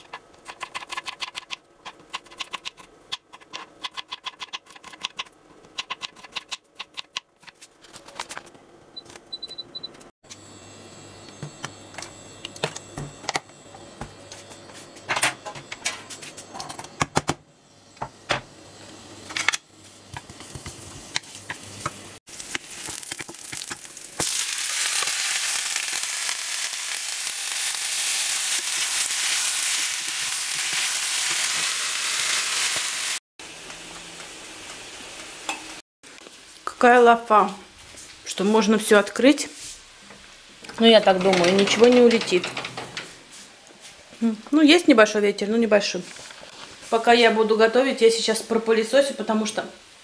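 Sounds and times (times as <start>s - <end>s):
beans sizzling in hot oil: 19.8s - 36.6s.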